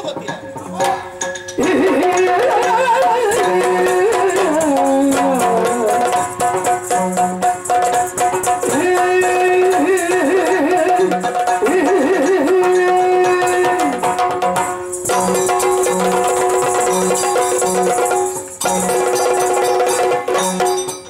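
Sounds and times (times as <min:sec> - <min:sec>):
drum strokes: 0:00.0 - 0:21.0
person singing ornamented melody: 0:01.6 - 0:06.2.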